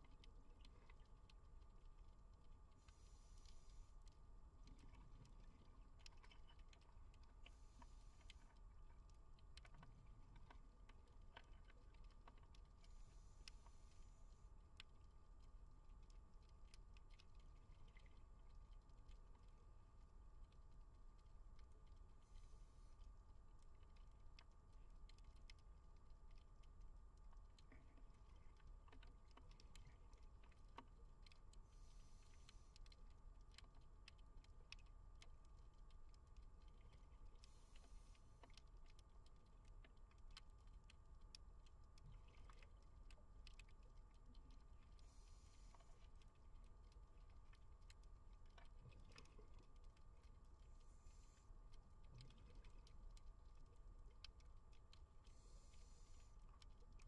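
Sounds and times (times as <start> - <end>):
fine underwater crackling and ticking: 0.0 - 57.0
faint regulator breath hiss: 2.8 - 4.0, 31.6 - 32.8, 55.3 - 56.4.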